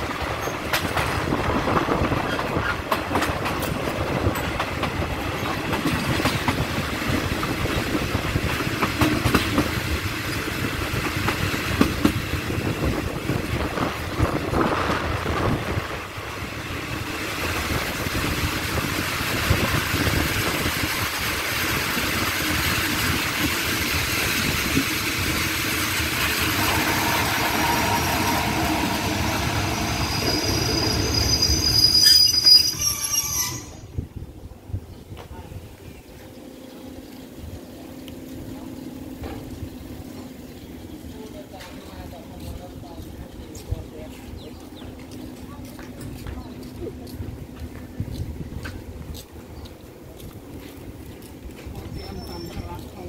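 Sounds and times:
train running noise: 0.0 - 53.0
train wheel clacks over joints: 0.1 - 15.0
high-pitched brake squeal: 27.7 - 34.0, 51.8 - 52.8.

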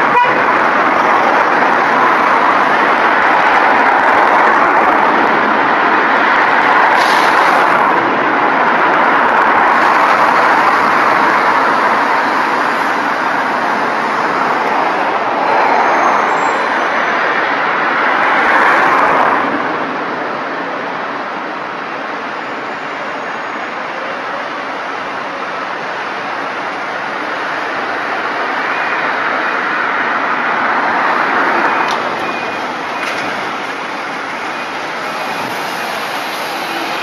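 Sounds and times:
traffic noise: 0.0 - 37.0
diesel bus engines running: 19.4 - 37.0.

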